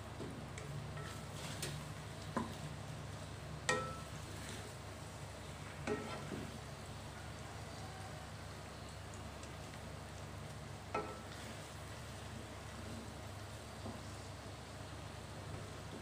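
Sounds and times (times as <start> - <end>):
spatula scraping and knocking pan: 5.8 - 6.6.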